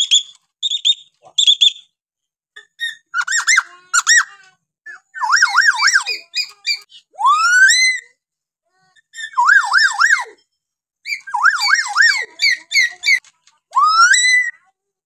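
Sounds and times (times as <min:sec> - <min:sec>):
myna bird calling and whistling: 0:00.0 - 0:01.9, 0:04.9 - 0:08.0, 0:11.0 - 0:14.6.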